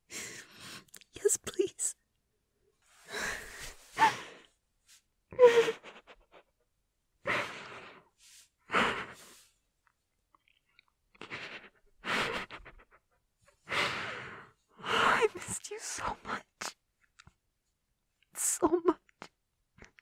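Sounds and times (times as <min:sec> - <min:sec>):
woman gasping and sighing: 0:03.0 - 0:04.5, 0:05.4 - 0:05.8.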